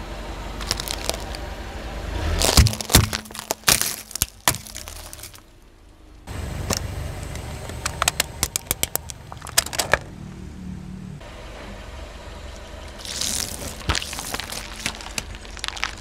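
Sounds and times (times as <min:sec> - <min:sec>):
low car rumble: 0:00.0 - 0:16.0
plastic ball cracking: 0:00.6 - 0:01.4, 0:02.4 - 0:05.4, 0:07.7 - 0:10.0, 0:13.0 - 0:16.0
toothpick tubes snapping under tyre: 0:00.6 - 0:01.4, 0:02.3 - 0:05.4, 0:06.6 - 0:10.1, 0:12.9 - 0:16.0.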